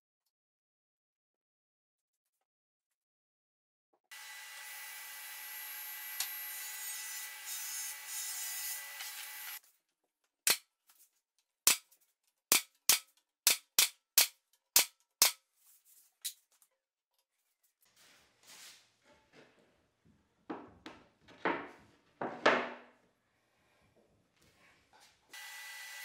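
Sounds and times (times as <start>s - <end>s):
table saw running: 4.1s - 9.6s, 25.3s - 26.0s.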